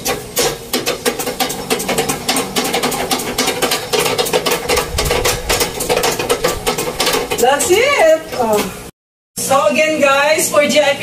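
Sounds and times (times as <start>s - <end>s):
treadle sewing machine clicking: 1.1s - 8.7s.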